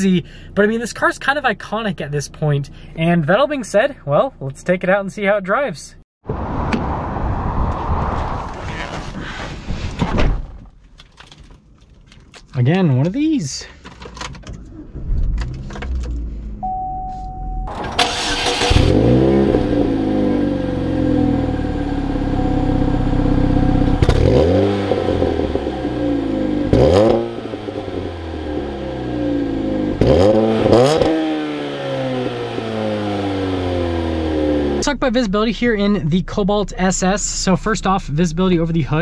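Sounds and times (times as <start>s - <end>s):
car engine idling and revving: 14.2s - 39.0s
short beep: 16.6s - 17.7s, 22.2s - 23.0s.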